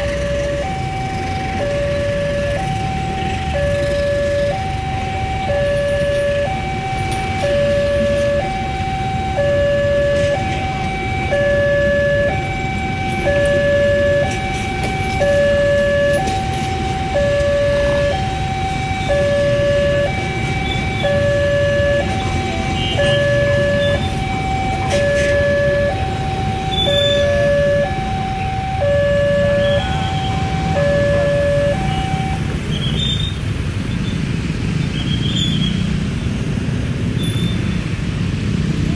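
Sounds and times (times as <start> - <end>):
two-tone crossing alarm: 0.0 - 32.6
train rumbling on rails: 0.0 - 38.9.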